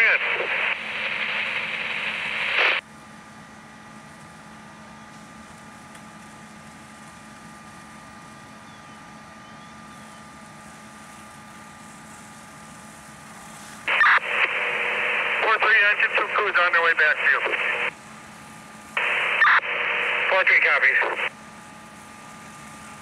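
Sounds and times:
radio static burst: 0.0s - 2.8s, 13.9s - 18.0s, 19.0s - 21.3s
radio transmission: 0.0s - 2.8s, 13.8s - 18.0s, 18.9s - 21.3s
fire engines humming: 0.0s - 23.0s.

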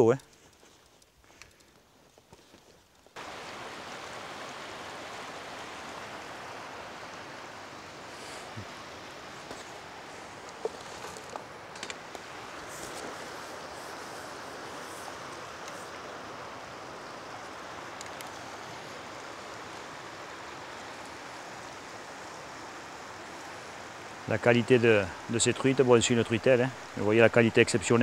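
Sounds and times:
faint clicks: 0.2s - 3.1s, 17.9s - 18.5s
stream rushing over stones: 3.2s - 28.0s.

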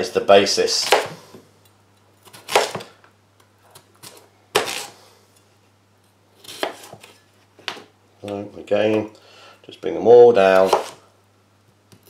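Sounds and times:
knife cutting onto plastic board: 6.4s - 7.8s, 10.6s - 11.0s.

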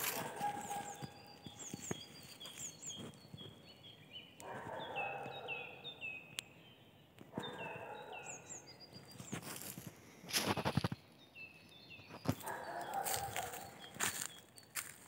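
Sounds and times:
footsteps in dry leaves: 0.0s - 3.5s, 9.0s - 10.8s, 12.3s - 15.0s
songbirds singing: 0.0s - 15.0s.

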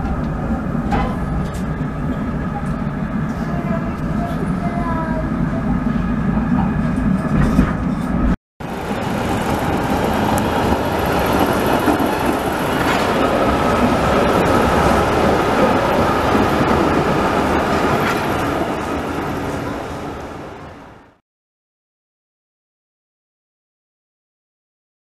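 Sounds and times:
city street noise: 0.0s - 21.2s
tram rolling on rails: 0.0s - 21.2s.

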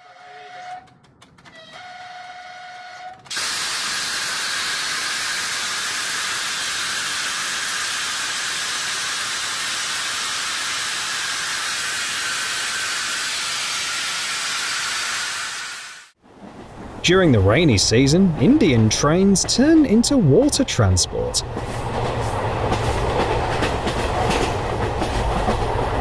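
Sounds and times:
locomotive horn: 0.0s - 1.0s, 1.6s - 3.3s
loud even hiss: 3.3s - 16.2s.

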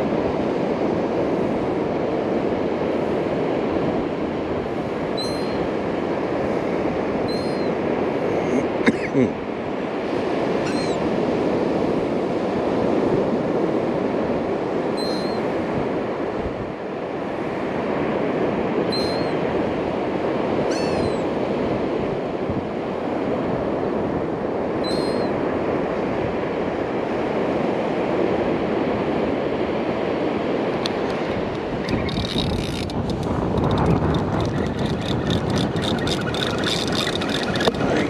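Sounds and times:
wind: 0.0s - 38.0s
surf rushing: 28.4s - 38.0s.

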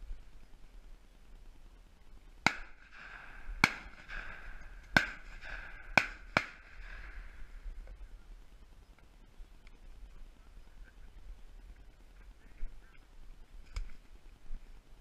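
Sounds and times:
shotgun shots: 2.4s - 7.7s.

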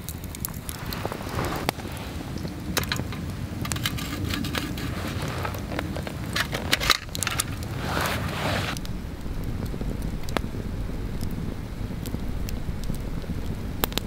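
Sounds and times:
dry leaves rustling: 0.0s - 13.5s
campfire crackling and popping: 0.0s - 14.0s
low steady rumble: 0.0s - 14.0s.

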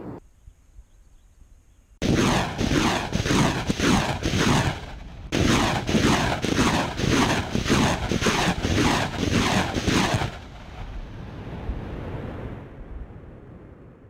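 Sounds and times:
rocket launch blasts: 2.0s - 12.8s.

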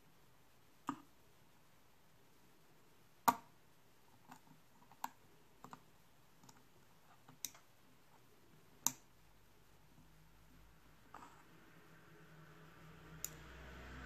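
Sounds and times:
tweezers clicking on circuit board: 7.3s - 7.7s, 8.8s - 9.1s, 13.1s - 13.5s.

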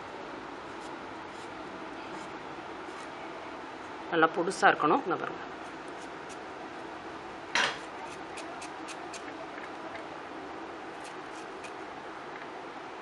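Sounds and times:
knife cutting peel: 7.8s - 9.3s, 11.0s - 11.8s
knife scrape: 11.0s - 11.8s.

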